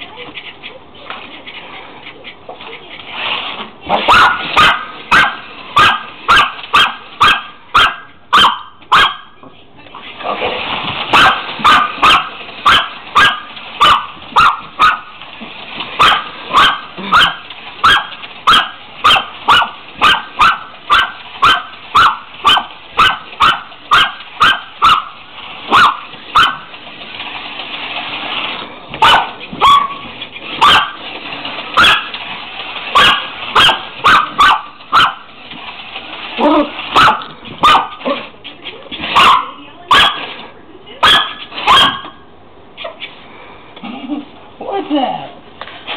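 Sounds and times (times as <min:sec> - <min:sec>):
dog barking: 0:03.9 - 0:09.4, 0:11.1 - 0:15.1, 0:16.0 - 0:26.6, 0:29.0 - 0:30.0, 0:30.6 - 0:31.0, 0:31.8 - 0:32.1, 0:33.0 - 0:35.2, 0:36.9 - 0:38.2, 0:39.2 - 0:40.2, 0:41.0 - 0:42.2.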